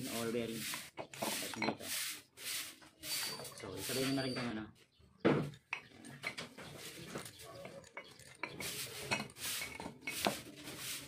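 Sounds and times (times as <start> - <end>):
metal parts clinking and knocking: 5.5 - 10.4.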